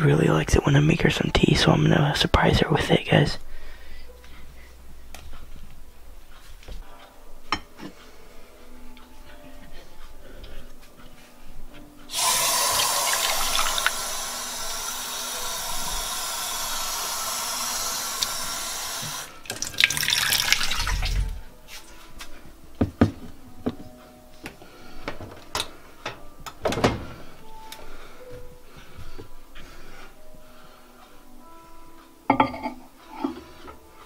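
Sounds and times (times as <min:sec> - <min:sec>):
faucet running into mug: 0:12.1 - 0:21.4.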